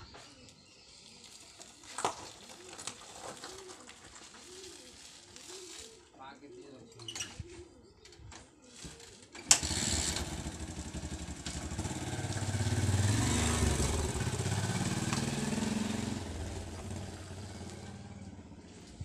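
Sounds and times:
motorcycle riding past: 9.5s - 19.0s.

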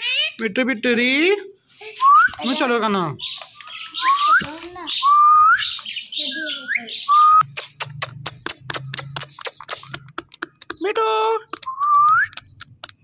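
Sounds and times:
parakeet whistled calls: 3.2s - 7.5s
rapid sharp clicks: 7.4s - 13.0s.

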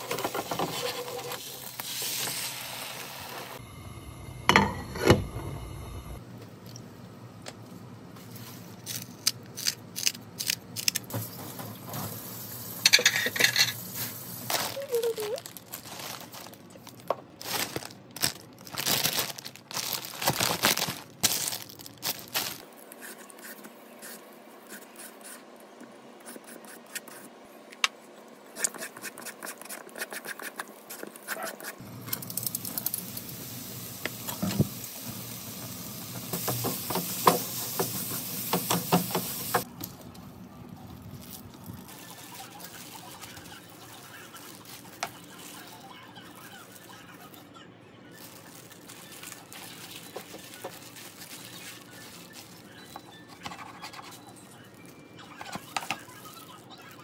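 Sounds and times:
food preparation handling: 12.8s - 24.2s, 36.3s - 47.5s, 48.1s - 57.0s
plastic bag rustling: 13.8s - 22.9s, 40.6s - 47.4s, 48.1s - 56.6s.

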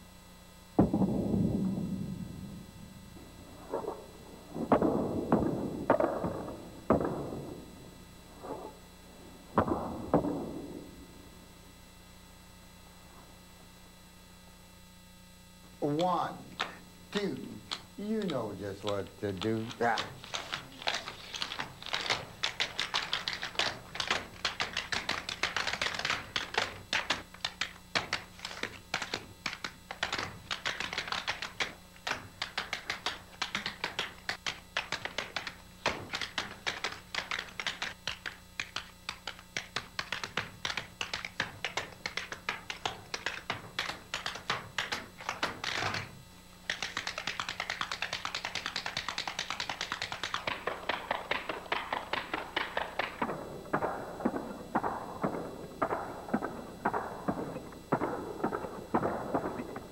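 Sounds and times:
tap shoes on wooden floor: 18.2s - 53.4s.

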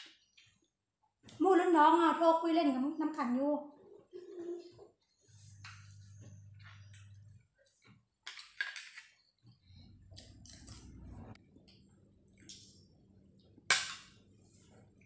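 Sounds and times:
faint low hum: 3.5s - 8.0s, 9.3s - 15.0s
cutlery clinking on metal tray: 13.7s - 14.1s.

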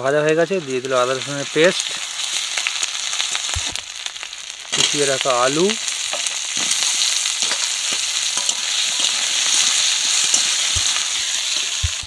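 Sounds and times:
potatoes sizzling in hot oil: 0.0s - 12.0s
steel spatula scraping wok: 5.9s - 12.0s.

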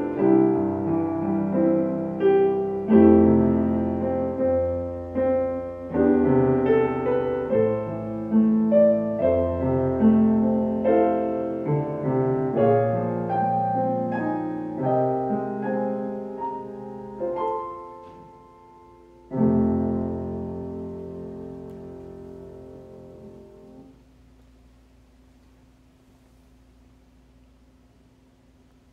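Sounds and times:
solo piano chords: 0.0s - 24.4s.

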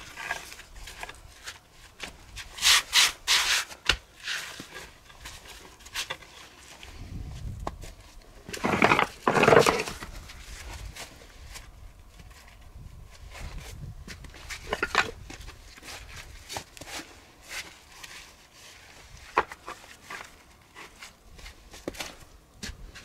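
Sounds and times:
rough scraping strokes: 2.3s - 7.2s.

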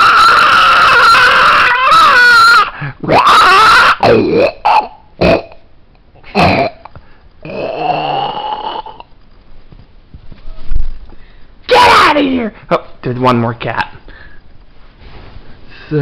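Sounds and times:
cat growling and yowling: 0.0s - 4.9s.

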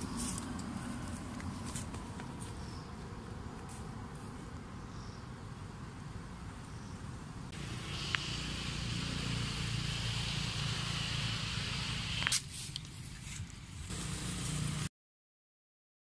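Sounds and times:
steady hiss: 7.4s - 14.9s.

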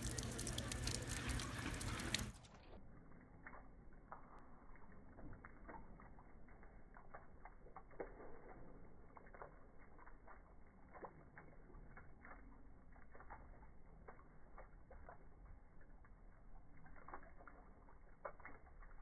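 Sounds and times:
water trickling and dripping: 0.0s - 19.0s.

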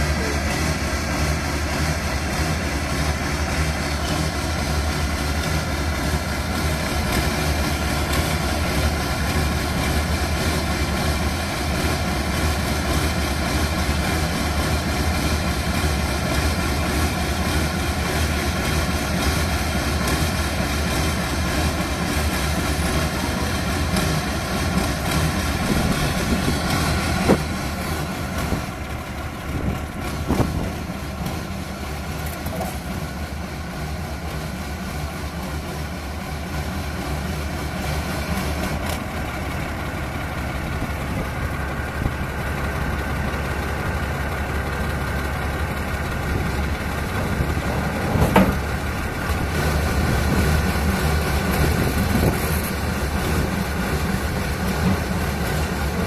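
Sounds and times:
diesel engine running: 0.0s - 56.0s
sharp knocks: 48.1s - 48.7s.

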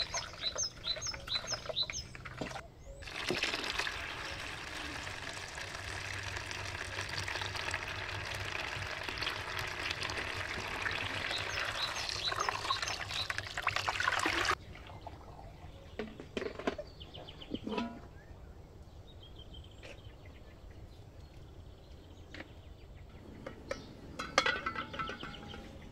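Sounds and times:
water splashing into a colander: 3.0s - 14.6s.

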